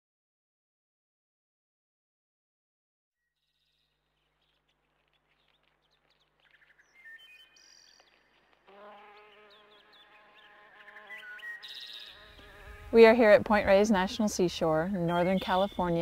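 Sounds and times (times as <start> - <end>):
bird chirps: 3.2 - 12.6, 14.1 - 16.0
flying insect buzzing: 7.6 - 13.9.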